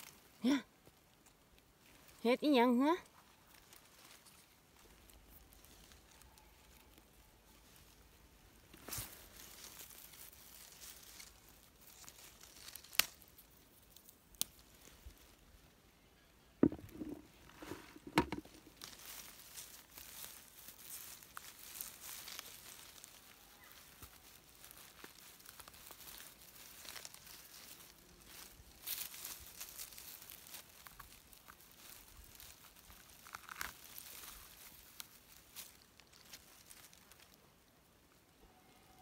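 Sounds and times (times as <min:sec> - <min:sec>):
vegetation rustling and crackling: 0:01.0 - 0:15.7, 0:16.6 - 0:37.7
sharp knocks: 0:16.6 - 0:18.5.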